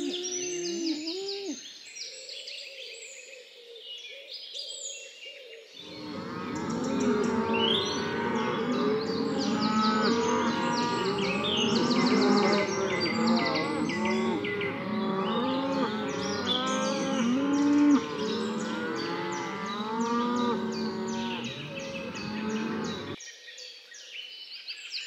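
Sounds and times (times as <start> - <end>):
cattle mooing: 5.9 - 23.2.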